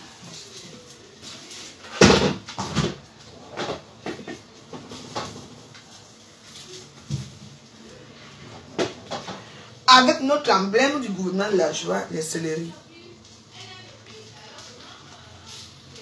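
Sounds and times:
kitchen knocks and clatters: 0.2s - 6.0s, 6.9s - 7.6s, 8.4s - 9.6s.

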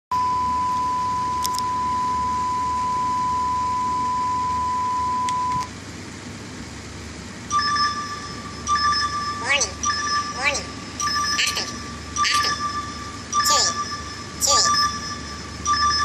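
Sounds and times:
steady sine test tone: 0.1s - 5.7s.

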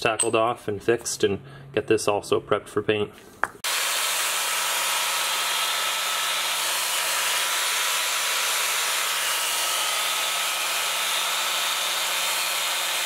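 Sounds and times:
wire wheel grinder scrubbing metal: 3.7s - 13.0s.

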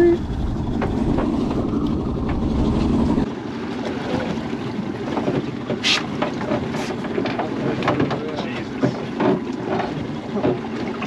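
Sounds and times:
wind buffeting microphone: 0.0s - 3.3s
sea and boat noise: 0.0s - 11.0s.

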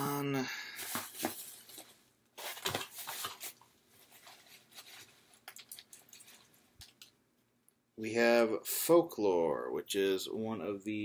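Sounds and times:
packaging crinkling: 0.8s - 7.1s.

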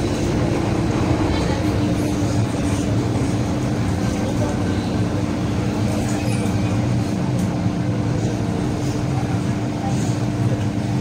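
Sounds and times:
train running rumble: 0.0s - 11.0s.

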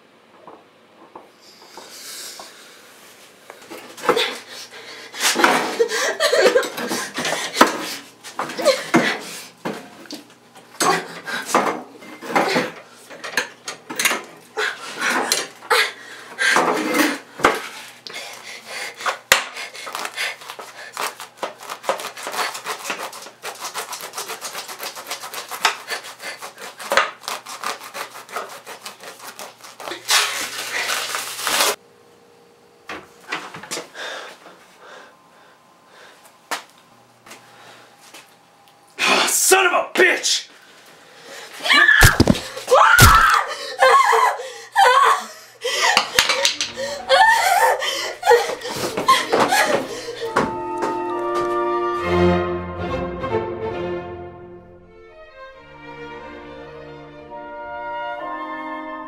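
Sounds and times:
hacksaw sawing strokes: 19.6s - 30.4s.

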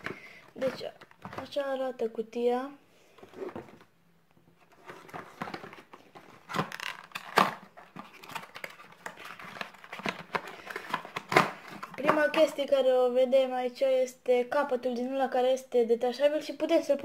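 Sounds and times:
cardboard rustling and scraping: 3.2s - 3.9s, 4.5s - 12.2s.

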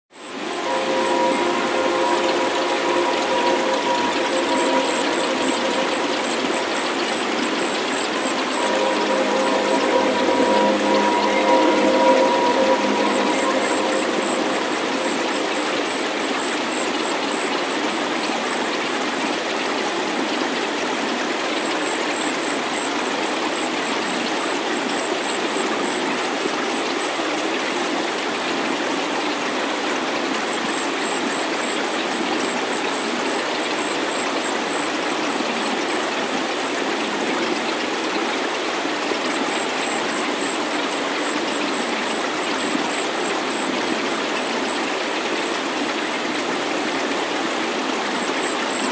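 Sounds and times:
thin high-pitched tone: 0.2s - 19.9s.

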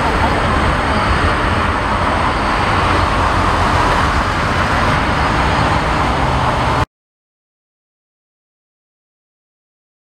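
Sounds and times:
jet engines climbing: 0.0s - 6.9s.

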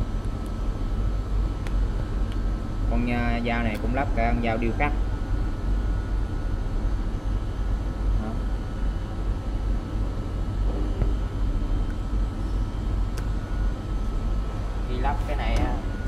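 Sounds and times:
faint steady whine: 0.0s - 16.0s
machine shop low rumble: 0.0s - 16.0s.

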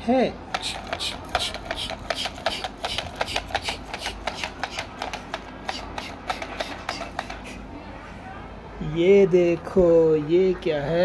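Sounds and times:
toy mechanism clicking: 0.5s - 7.6s.

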